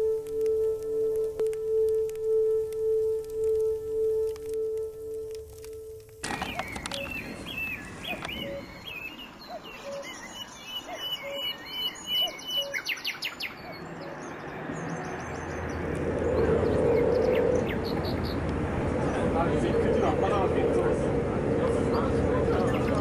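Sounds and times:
steady rumbling noise: 0.0 - 9.4, 13.8 - 23.0
birds chirping: 0.0 - 23.0.

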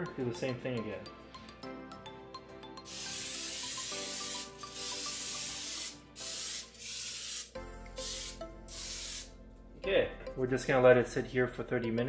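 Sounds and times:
cooking spray hissing: 2.9 - 9.3.

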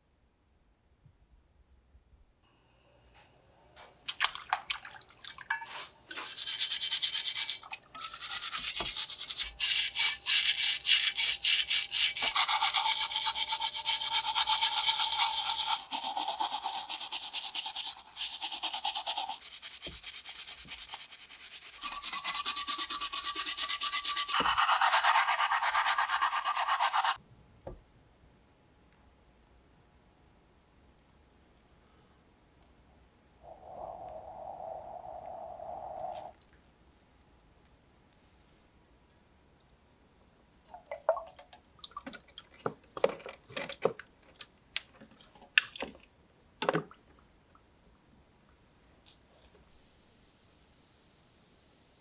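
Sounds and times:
brush scrubbing wet metal: 5.6 - 27.2.

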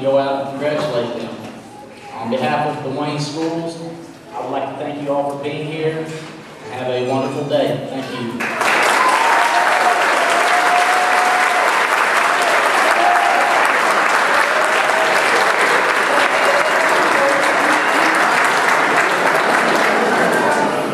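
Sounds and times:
large audience applauding: 8.4 - 20.9.

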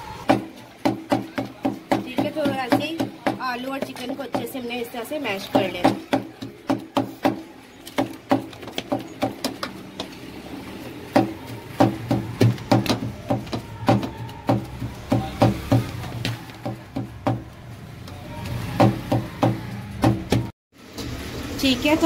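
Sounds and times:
pestle pounding in steel bowl: 0.3 - 4.6, 5.4 - 9.7, 11.2 - 17.5.

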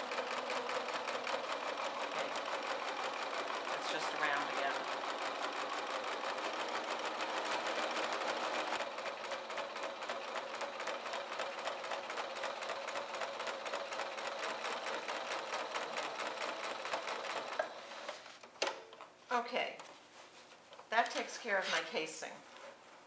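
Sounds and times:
sewing machine stitching: 0.0 - 18.2.

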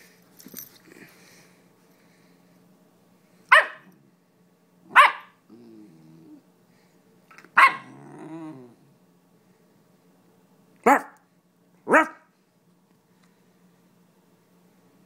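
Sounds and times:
puppy barking: 3.5 - 4.0, 4.9 - 5.4, 7.6 - 8.0, 10.8 - 11.2, 11.9 - 12.3
puppy growling: 5.4 - 6.5, 7.6 - 8.9.

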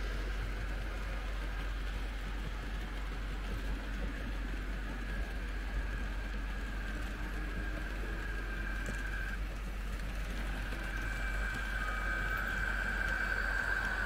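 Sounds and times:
model train rolling rattle: 0.0 - 14.0
high whine: 5.7 - 14.0.

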